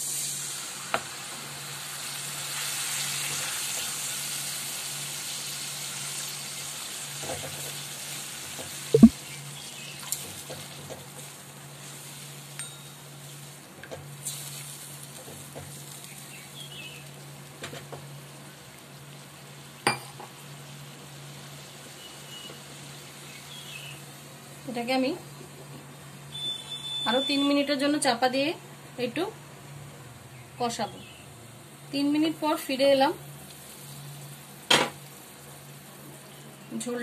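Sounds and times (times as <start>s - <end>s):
water sizzling in hot pan: 0.0s - 25.0s, 32.0s - 37.0s.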